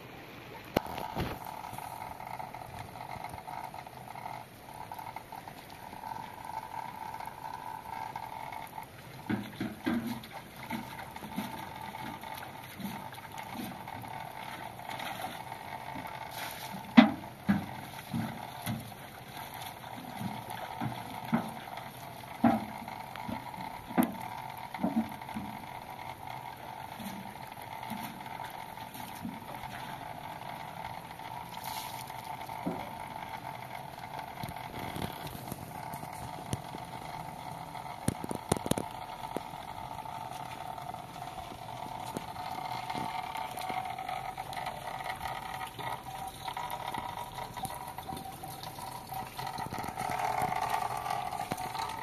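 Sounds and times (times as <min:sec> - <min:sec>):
background hum: 0:00.1 - 0:52.0
water sloshing: 0:00.6 - 0:52.0
bucket knocks and clunks: 0:09.3 - 0:11.5, 0:16.9 - 0:18.9.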